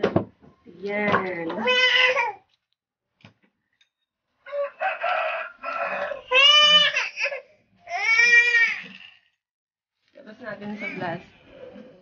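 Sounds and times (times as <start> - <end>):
rooster crowing: 4.4 - 6.4.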